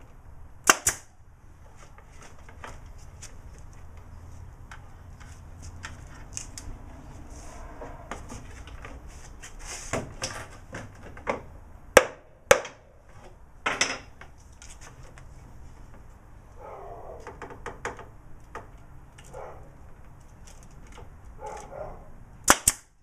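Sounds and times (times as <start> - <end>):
nail gun firing: 0.6 - 1.1, 22.4 - 23.0.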